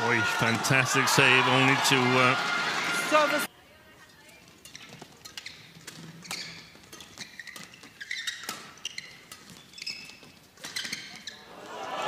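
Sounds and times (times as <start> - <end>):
shoes squeaking on court: 4.0 - 11.5.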